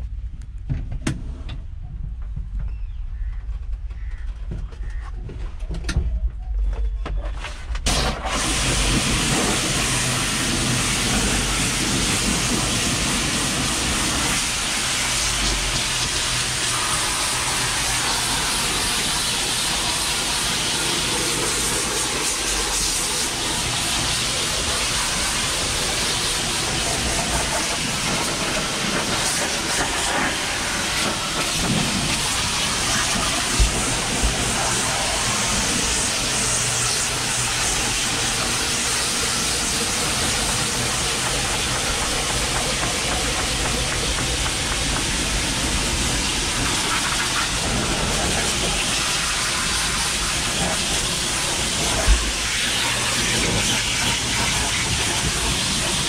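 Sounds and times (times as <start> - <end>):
low rumble: 0.0 - 17.3
pressure washer jet hissing on metal: 7.9 - 56.0.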